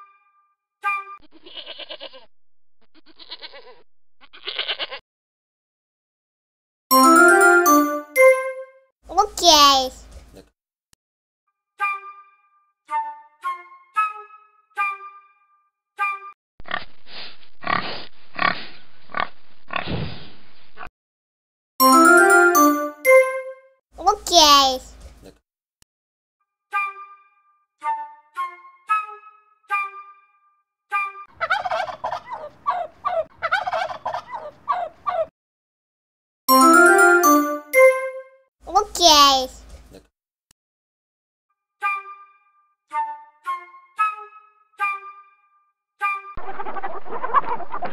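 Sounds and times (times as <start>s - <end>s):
musical notes: 6.9s - 8.8s, 21.8s - 23.7s, 36.5s - 38.4s
pig grunting and oinking: 16.6s - 19.9s
turkey gobbling: 31.4s - 35.3s, 46.4s - 47.9s.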